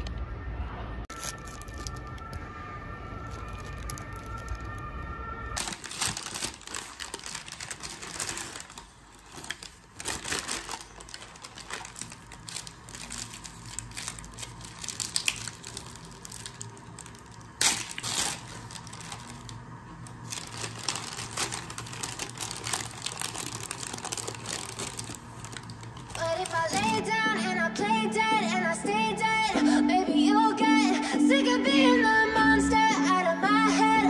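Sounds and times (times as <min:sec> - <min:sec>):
paper bags rustling and crinkling: 0:01.1 - 0:02.4, 0:03.2 - 0:05.0, 0:05.6 - 0:27.0.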